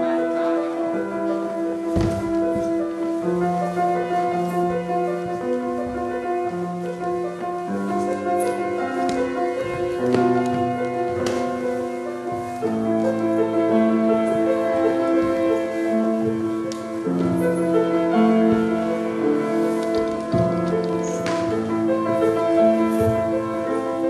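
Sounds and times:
slow piano-like chords: 0.0s - 24.0s.

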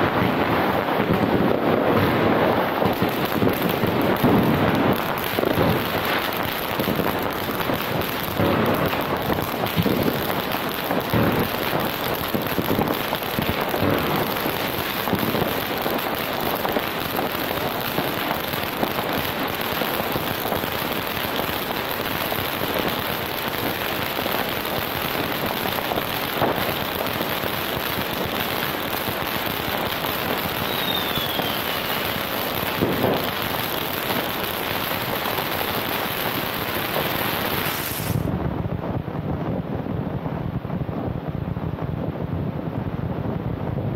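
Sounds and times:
fireworks bangs: 0.0s - 39.6s
firecrackers crackling and popping: 0.0s - 43.9s
falling firework whistle: 25.9s - 34.2s, 35.8s - 38.3s.

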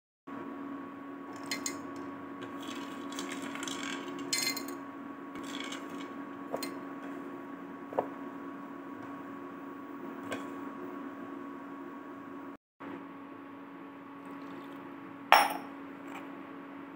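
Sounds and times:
steady hum: 0.3s - 16.9s
dry chickpeas rattling into steel jar: 2.6s - 4.4s, 5.4s - 6.0s.

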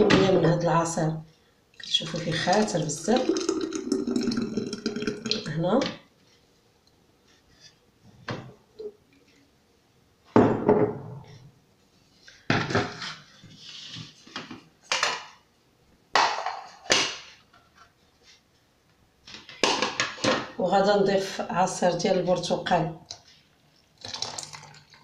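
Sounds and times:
glassware knocking on counter: 10.4s - 11.2s.

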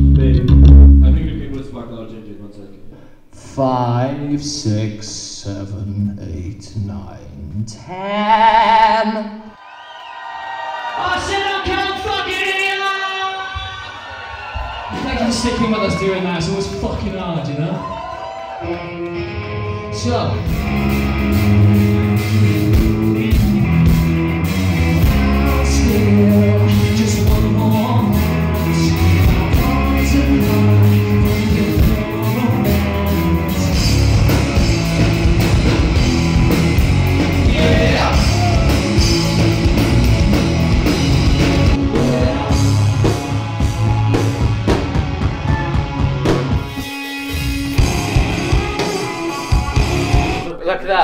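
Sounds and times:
rock band playing: 0.0s - 1.4s, 14.4s - 50.6s
person singing: 25.0s - 35.8s, 37.2s - 39.6s, 41.4s - 43.5s.

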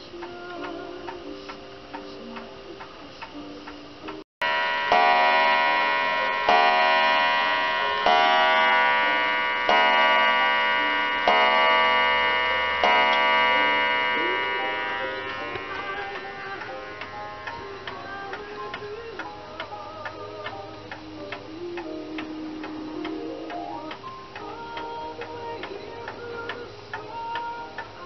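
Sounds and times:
clock striking on a wire gong: 4.4s - 17.6s.

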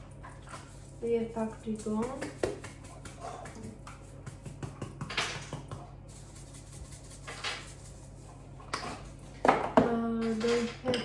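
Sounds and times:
containers knocking on counter: 9.4s - 10.0s.

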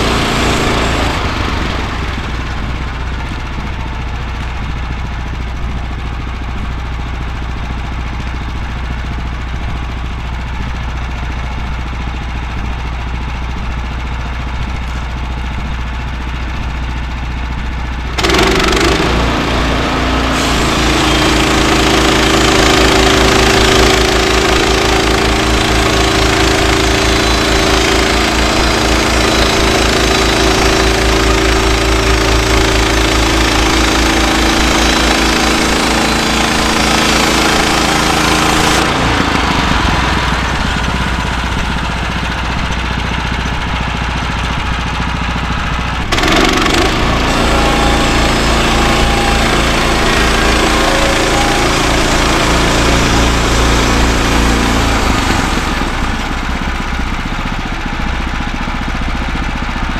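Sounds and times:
band saw cutting log: 0.0s - 2.3s, 18.1s - 42.3s, 46.1s - 56.5s
sawmill engine: 0.0s - 59.9s.

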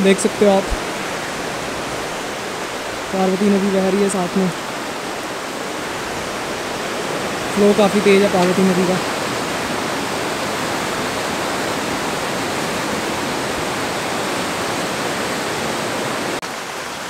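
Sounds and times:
quieter hiss: 0.0s - 13.2s
river rushing over rocks: 0.0s - 17.0s.

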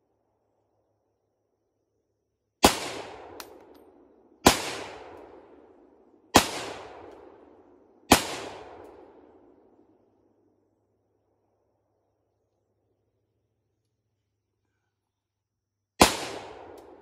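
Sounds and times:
rifle shots echoing: 2.6s - 9.5s, 16.0s - 17.0s.

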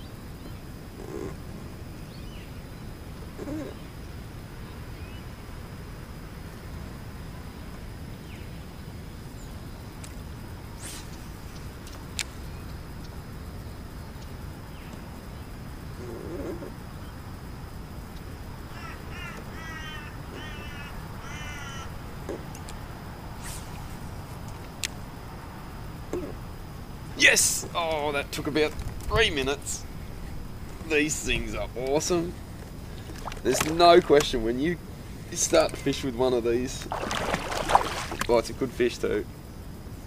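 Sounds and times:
steady low rumble: 22.0s - 35.7s.

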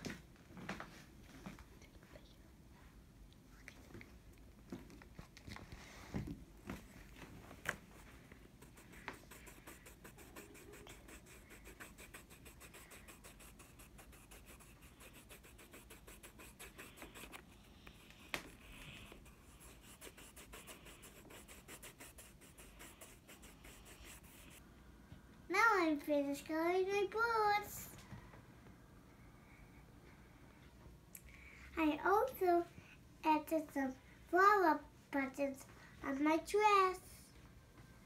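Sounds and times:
pencil scratching on paper: 8.5s - 24.6s.

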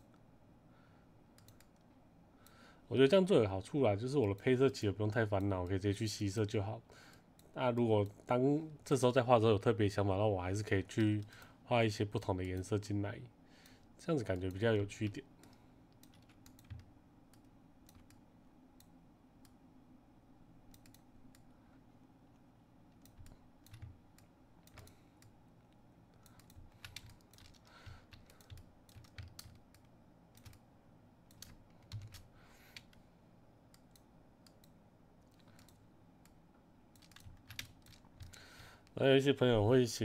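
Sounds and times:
low steady hum: 0.0s - 40.0s
keyboard and mouse clicks: 1.4s - 2.0s, 15.4s - 18.2s, 20.7s - 21.5s, 22.3s - 25.4s, 26.1s - 30.6s, 31.3s - 33.0s, 33.7s - 39.0s.

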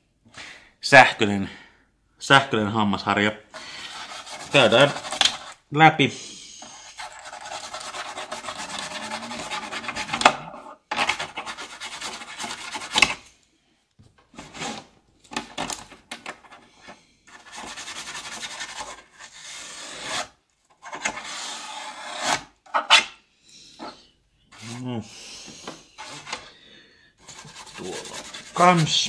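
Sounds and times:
electric toothbrush buzzing on plastic: 8.0s - 10.2s.

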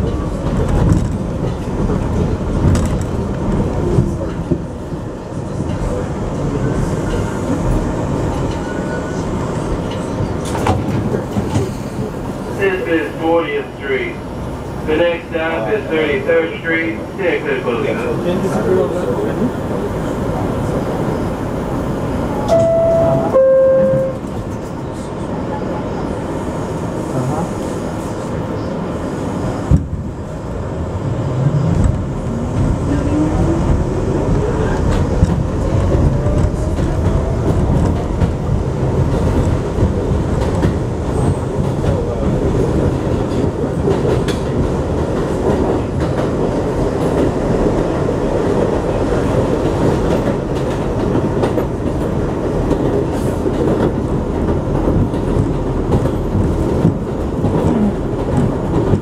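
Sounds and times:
train rumble: 0.0s - 59.0s
wheels clattering on rails: 31.6s - 59.0s.

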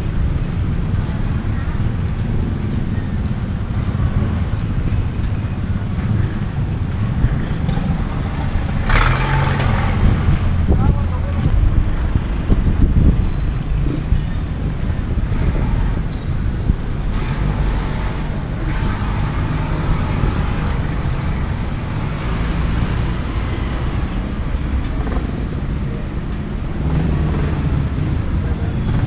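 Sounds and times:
passing traffic: 0.0s - 29.0s
vehicle engines rumbling: 0.0s - 29.0s.

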